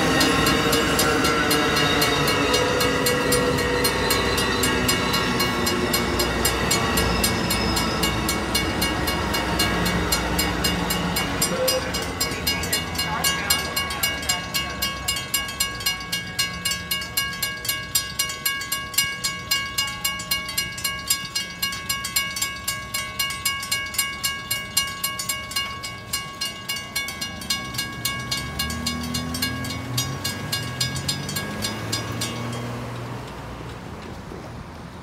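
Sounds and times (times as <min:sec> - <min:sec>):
railroad crossing bell ringing: 0:00.0 - 0:33.7
car engines accelerating: 0:27.3 - 0:35.0.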